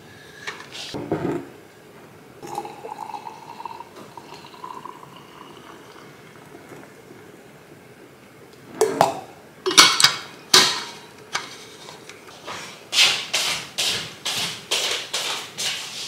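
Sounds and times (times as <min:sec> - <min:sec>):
footsteps on hard floor: 0:12.4 - 0:16.0.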